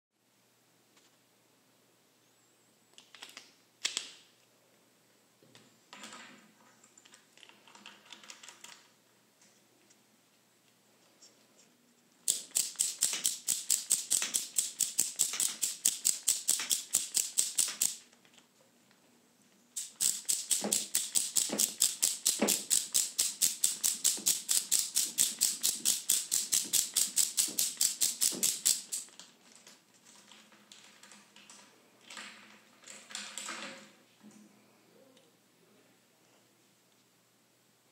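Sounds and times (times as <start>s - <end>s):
ratchet wrench clicking: 12.3s - 18.0s, 19.8s - 29.1s
tool handling clicks: 12.3s - 18.1s, 19.8s - 29.2s.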